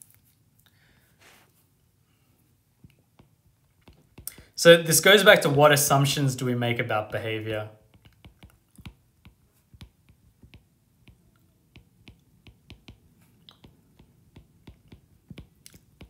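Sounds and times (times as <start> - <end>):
stylus tapping on glass screen: 7.9 - 16.0.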